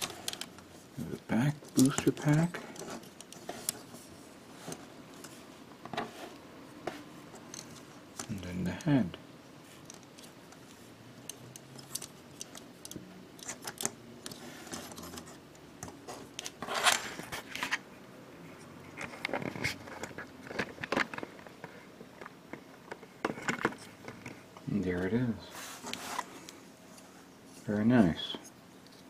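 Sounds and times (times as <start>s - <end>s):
plastic parts clicking: 0.0s - 0.6s, 9.8s - 16.6s.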